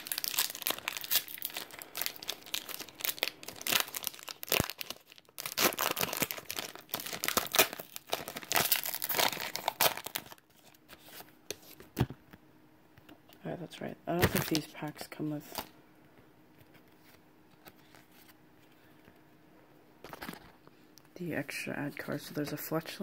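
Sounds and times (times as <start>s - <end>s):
card pack wrapper crinkling and tearing: 0.0s - 11.9s, 14.2s - 14.8s.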